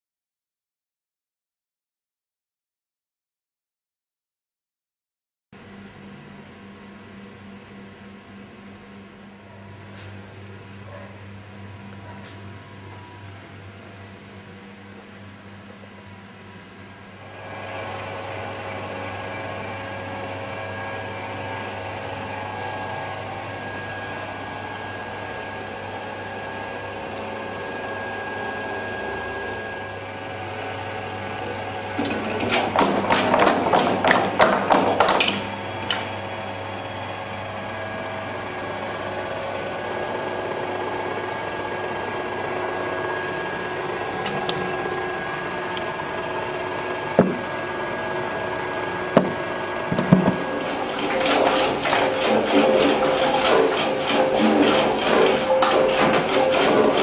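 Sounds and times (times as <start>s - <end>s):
motor hum: 7.0s - 57.0s
potatoes clattering through cutter: 32.0s - 36.1s, 49.9s - 57.0s.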